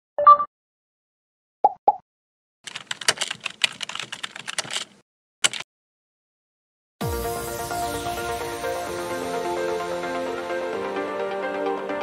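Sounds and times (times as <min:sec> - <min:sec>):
rapid keyboard typing: 0:02.7 - 0:05.6.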